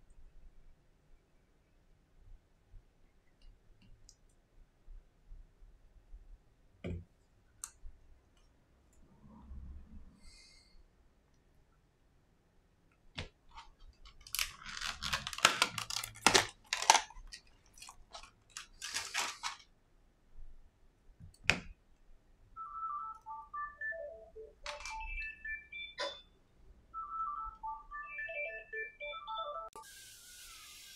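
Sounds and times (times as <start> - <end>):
simple electronic tune: 22.6 - 29.8.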